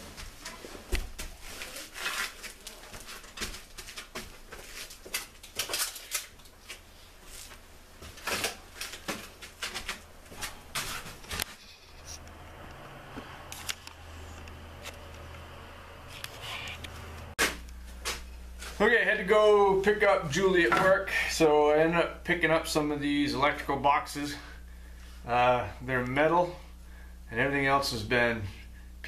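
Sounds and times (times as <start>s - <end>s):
steady low hum: 6.2s - 29.0s.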